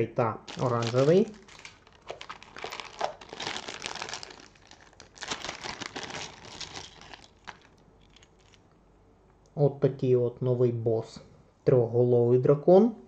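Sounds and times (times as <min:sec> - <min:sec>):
plastic zip bag crinkling: 0:00.4 - 0:08.7.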